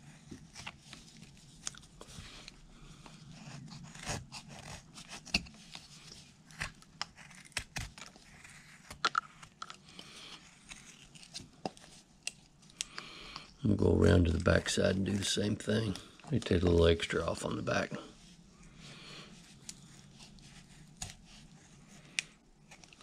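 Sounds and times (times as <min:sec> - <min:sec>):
knife carving wood: 0:03.3 - 0:12.8, 0:19.4 - 0:23.0.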